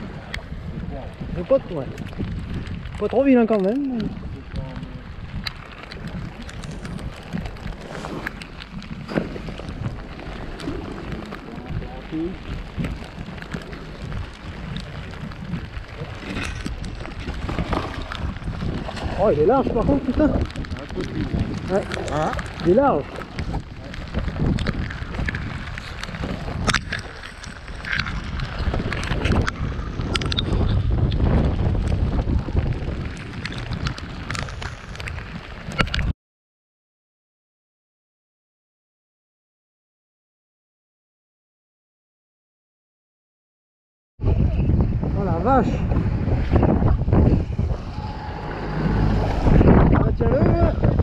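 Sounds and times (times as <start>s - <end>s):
wind buffeting microphone: 0.0s - 36.1s, 44.2s - 51.0s
fishing gear clicking on boat: 12.5s - 31.2s.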